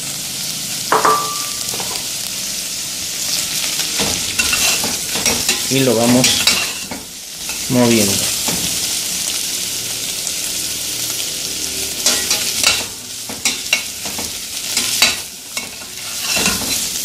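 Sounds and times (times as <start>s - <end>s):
frying hiss: 0.0s - 17.0s
metal spoon scraping pot: 15.6s - 16.9s.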